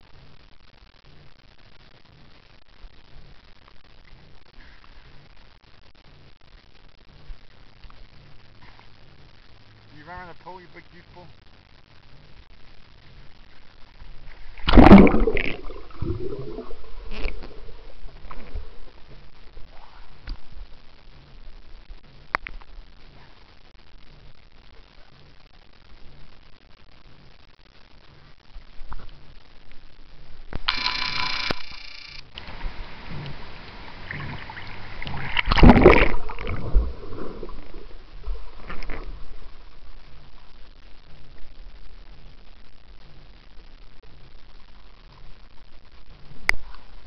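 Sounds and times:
muffled underwater burbling: 0:14.5 - 0:20.5, 0:32.9 - 0:39.6
loud water splash: 0:14.6 - 0:16.8, 0:34.1 - 0:37.5
steady high-pitched tone: 0:30.6 - 0:32.4
pool water lapping: 0:32.4 - 0:39.2.

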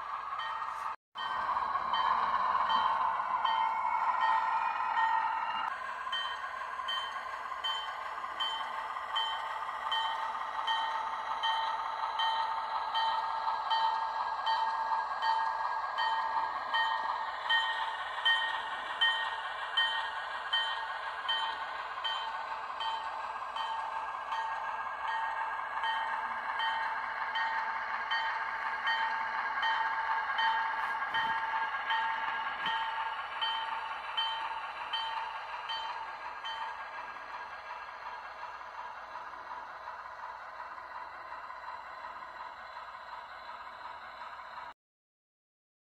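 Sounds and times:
model train running hum: 0:00.0 - 0:44.7
locomotive bell ringing: 0:00.4 - 0:36.9.

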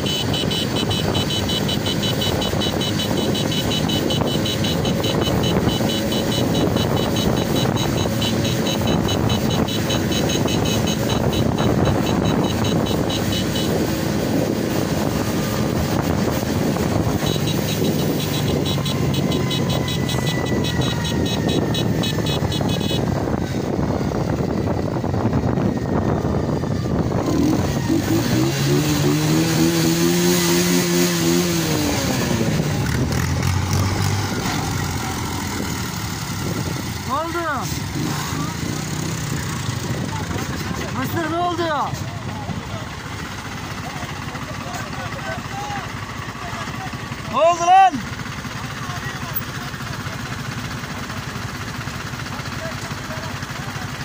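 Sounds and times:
engine revving: 0:00.0 - 0:42.9
tractor diesel engines running: 0:00.0 - 0:54.0.

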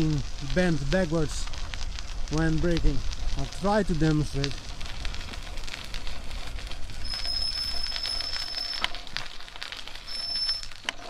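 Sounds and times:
rush of riding: 0:00.0 - 0:11.0
bicycle brake squealing: 0:06.9 - 0:09.2, 0:09.9 - 0:11.0.

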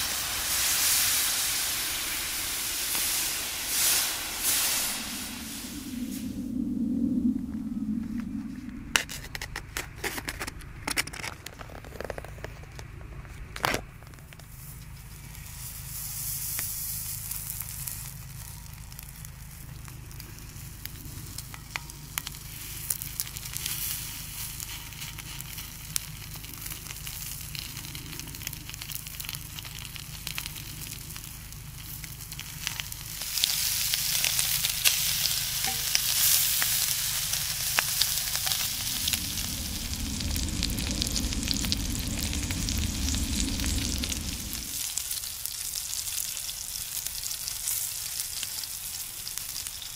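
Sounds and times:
meat sizzling on hot griddle: 0:00.0 - 0:05.9, 0:15.4 - 0:49.9.

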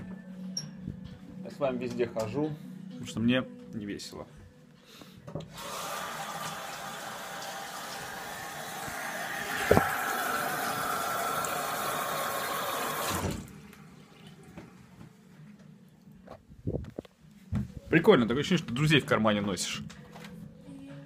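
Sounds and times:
water running from a tap: 0:05.5 - 0:14.5.

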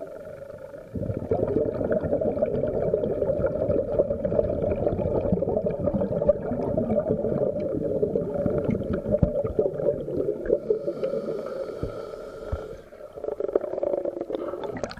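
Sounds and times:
faint steady whine: 0:00.0 - 0:01.4
underwater bubbles rushing: 0:00.0 - 0:14.9.

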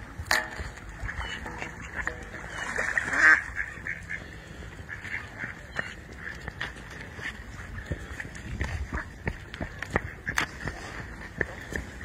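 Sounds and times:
ducks and geese calling: 0:00.3 - 0:12.0
rough noisy bird call: 0:00.6 - 0:06.6
goose honking: 0:01.0 - 0:06.5.

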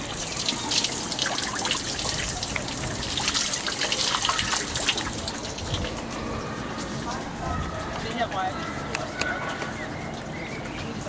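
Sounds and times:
shower water spraying: 0:00.0 - 0:07.1.

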